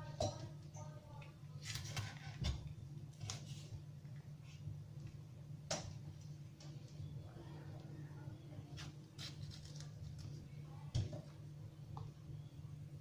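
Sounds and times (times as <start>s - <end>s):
knife slicing peppers: 8.8s - 10.2s.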